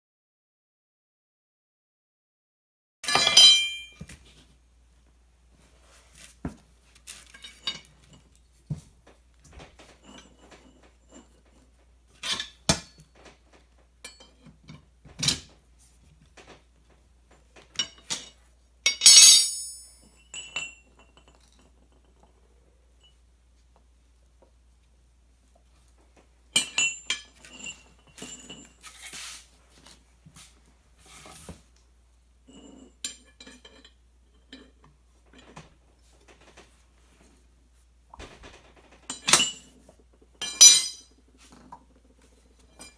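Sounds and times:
metal clang against safe: 0:03.0 - 0:04.1
tire irons clinking on concrete: 0:03.0 - 0:04.2, 0:17.6 - 0:22.4, 0:26.5 - 0:29.2, 0:39.1 - 0:42.9.

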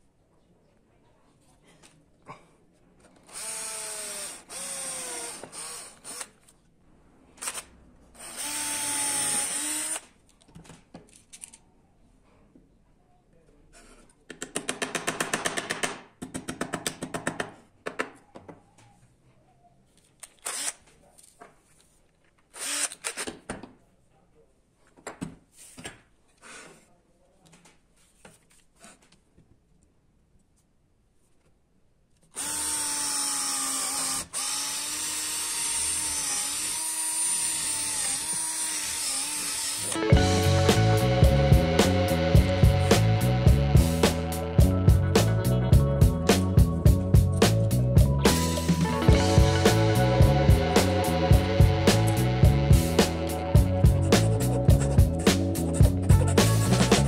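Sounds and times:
drill drilling into wood: 0:03.2 - 0:06.4, 0:08.2 - 0:10.1, 0:20.4 - 0:20.8, 0:22.6 - 0:23.2, 0:32.4 - 0:40.0.

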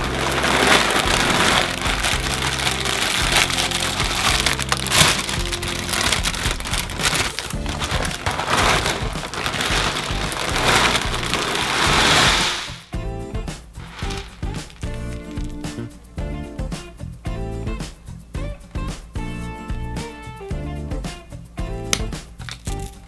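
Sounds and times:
cereal rattling onto table: 0:00.0 - 0:12.8, 0:13.8 - 0:15.6
plastic bag crinkling: 0:00.0 - 0:12.8, 0:13.8 - 0:15.7
background music: 0:00.0 - 0:23.0.

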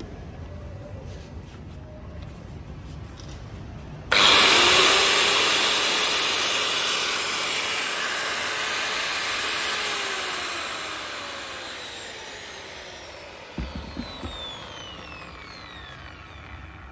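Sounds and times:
angle grinder motor winding down: 0:04.1 - 0:16.9.

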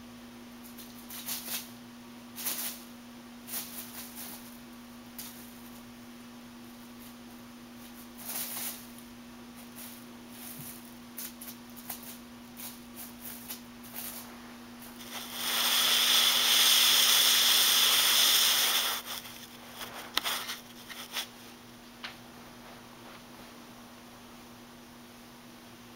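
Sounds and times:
foil streamers crinkling: 0:07.8 - 0:21.5
loud close rustling: 0:09.6 - 0:21.6.

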